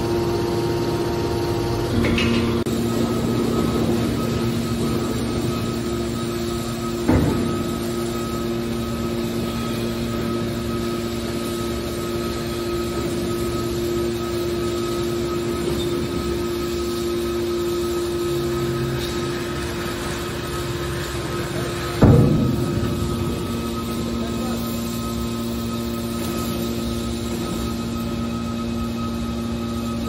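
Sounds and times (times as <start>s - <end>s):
hydraulic power unit whining: 0.0s - 30.0s
metal clunk: 1.9s - 2.7s, 22.0s - 24.2s.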